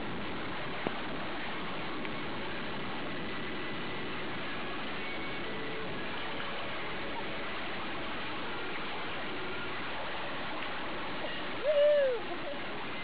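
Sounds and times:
water rushing and splashing: 0.0 - 13.0
woman crying out: 11.6 - 12.4.

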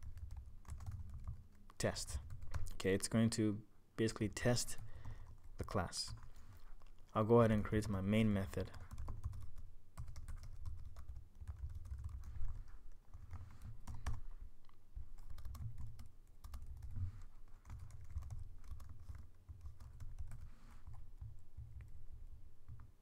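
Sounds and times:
typing on computer keyboard: 0.0 - 1.4, 8.6 - 14.2, 15.1 - 21.9.

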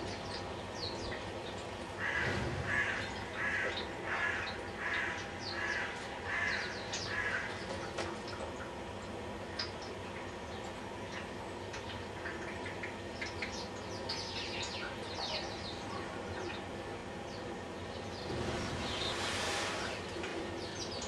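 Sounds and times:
bird calling: 2.0 - 7.7.

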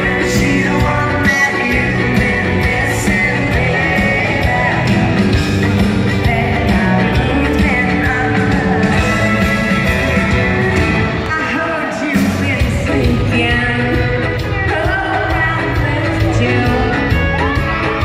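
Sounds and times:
steady drum beat: 0.0 - 11.3
live band playing country-pop: 0.0 - 18.0
woman singing lead: 0.0 - 18.0.

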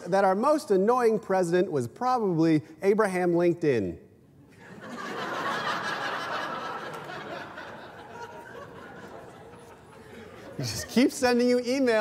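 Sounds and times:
studio audience laughing: 4.5 - 11.2.

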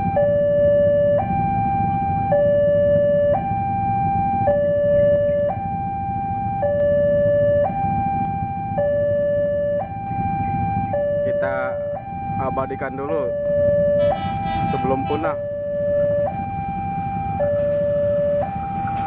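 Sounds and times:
level crossing two-tone alarm: 0.0 - 19.0
low rumble: 3.9 - 19.0.

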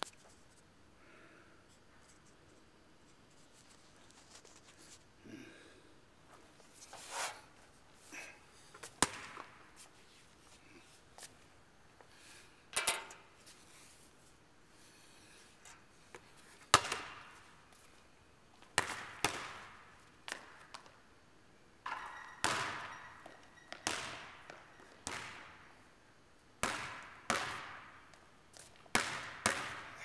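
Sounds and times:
basketball hits echoing in gym: 8.9 - 9.7, 16.7 - 17.5, 18.7 - 21.0, 21.8 - 25.9, 26.6 - 30.0.

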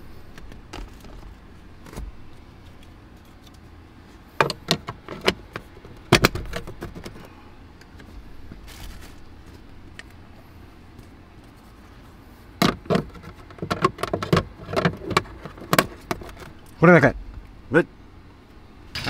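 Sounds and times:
plastic clicks and knocks: 12.6 - 16.5.

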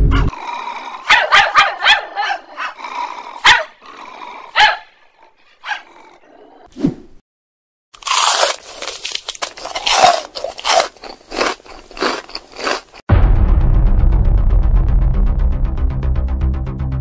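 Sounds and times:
puppy barking in high yaps: 1.1 - 2.8, 3.4 - 3.8, 4.6 - 5.0, 5.6 - 5.9.

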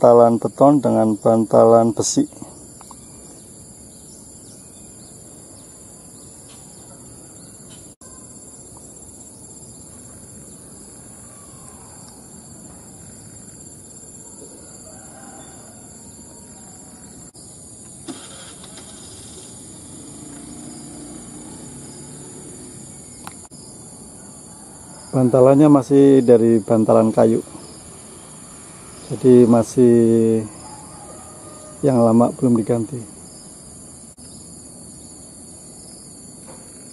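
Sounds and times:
high-pitched insect chorus: 0.0 - 36.9
faint bird chirps: 2.1 - 17.6, 27.0 - 35.2.

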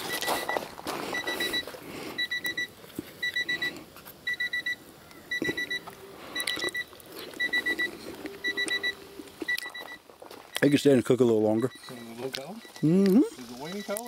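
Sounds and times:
electronic beeper high beeps: 6.4 - 14.0.

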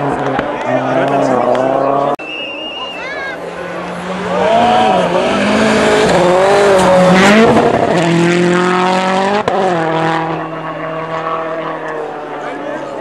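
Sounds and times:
rally car engine revving: 0.0 - 2.2, 3.4 - 13.0.

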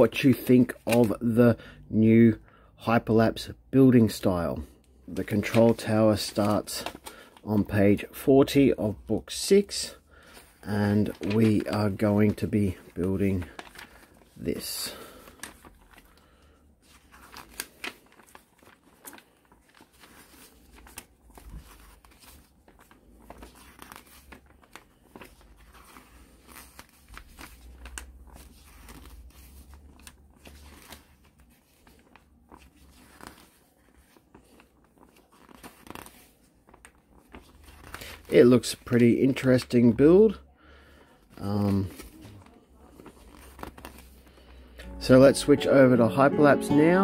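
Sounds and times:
paper pages turning: 0.4 - 1.2, 5.1 - 7.9, 10.2 - 38.9, 41.2 - 47.0.

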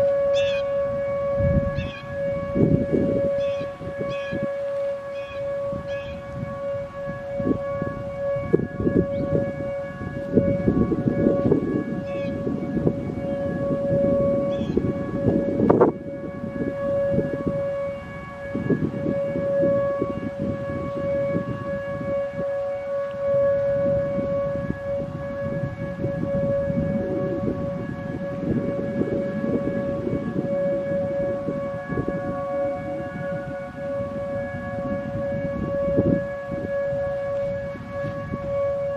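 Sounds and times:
steady dual-tone warning siren: 0.0 - 38.9.

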